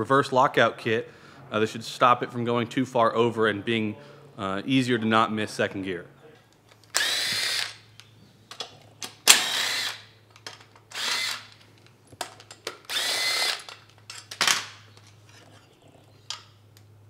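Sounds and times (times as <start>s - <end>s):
tool handling clicks: 6.5s - 15.4s
power drill bursts: 6.9s - 7.8s, 9.2s - 10.1s, 10.9s - 11.6s, 12.9s - 13.7s.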